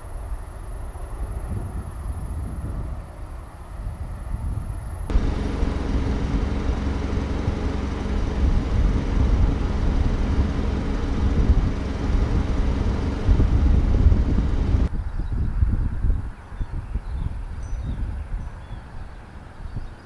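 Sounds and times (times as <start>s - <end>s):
wind rumbling on microphone: 0.0s - 20.0s
vehicle engine humming: 5.1s - 14.9s.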